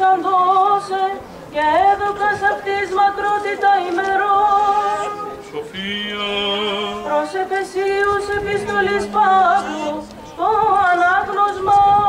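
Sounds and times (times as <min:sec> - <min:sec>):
voices chanting: 0:00.5 - 0:12.0
low steady note: 0:04.3 - 0:11.3.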